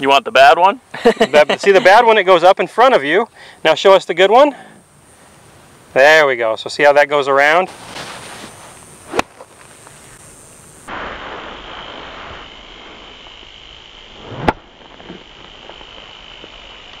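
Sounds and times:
golf club swishing: 0:07.7 - 0:10.2
golf ball struck with sharp crack: 0:09.0 - 0:09.5, 0:14.2 - 0:15.1.

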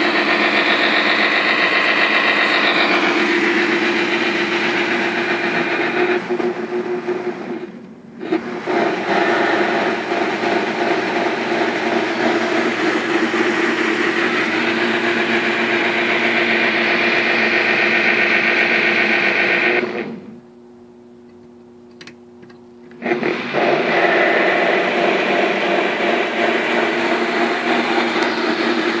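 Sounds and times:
model locomotive running: 0:00.0 - 0:20.3, 0:23.0 - 0:29.0.

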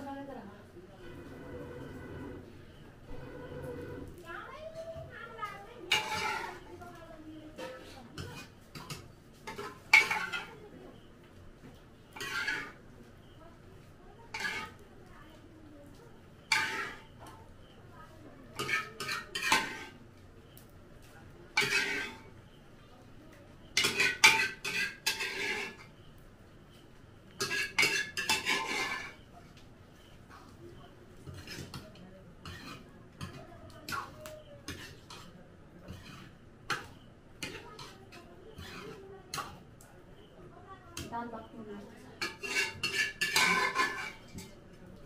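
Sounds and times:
metal spoon scraping metal pan: 0:05.8 - 0:06.7, 0:07.5 - 0:10.6, 0:12.1 - 0:12.8, 0:14.3 - 0:14.8, 0:16.4 - 0:17.2, 0:18.6 - 0:20.0, 0:21.6 - 0:22.4, 0:23.8 - 0:26.0, 0:27.4 - 0:29.2, 0:31.2 - 0:31.8, 0:32.4 - 0:39.6, 0:42.2 - 0:44.6.

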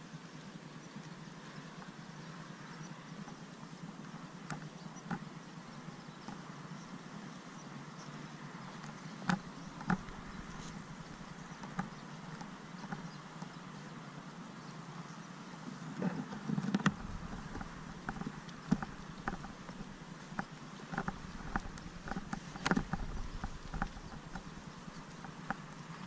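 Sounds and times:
bike clicks and knocks: 0:08.8 - 0:13.1, 0:16.0 - 0:25.7.

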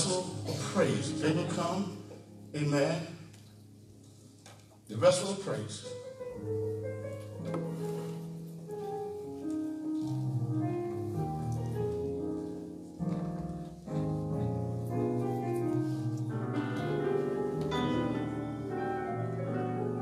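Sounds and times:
slow sustained keyboard chords: 0:00.0 - 0:04.4, 0:10.5 - 0:20.0.

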